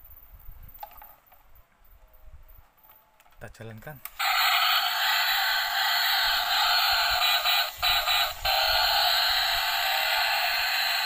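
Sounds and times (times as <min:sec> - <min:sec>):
toy electronic sound effect: 0:04.1 - 0:11.0.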